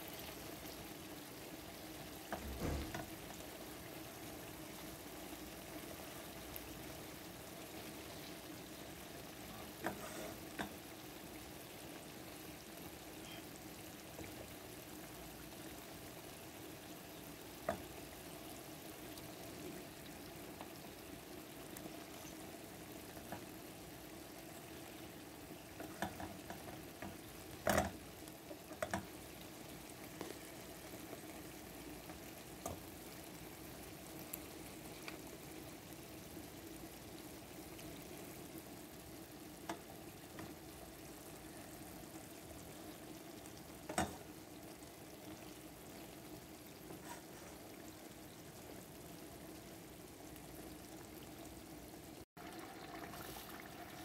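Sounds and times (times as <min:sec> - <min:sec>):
sauce bubbling: 0:00.0 - 0:54.0.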